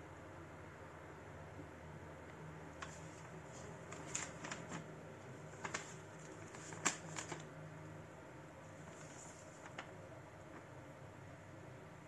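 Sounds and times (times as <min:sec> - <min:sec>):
paper crackling and rustling: 0:02.8 - 0:07.5, 0:08.7 - 0:10.0.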